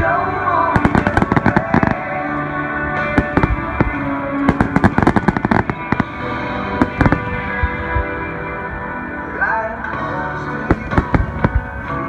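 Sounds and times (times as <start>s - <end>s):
steady music: 0.0s - 12.0s
fireworks popping: 0.6s - 8.3s, 10.7s - 12.0s.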